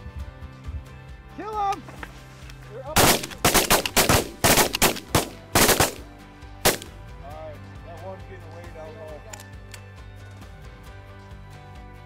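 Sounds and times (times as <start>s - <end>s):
shotgun fire: 3.0s - 7.0s.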